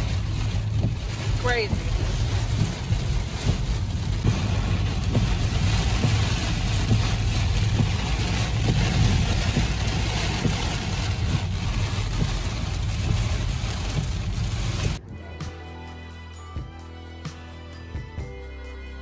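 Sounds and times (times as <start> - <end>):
heavy rain on a car: 0.0 - 15.0
tyres rumbling on wet road: 0.0 - 15.0.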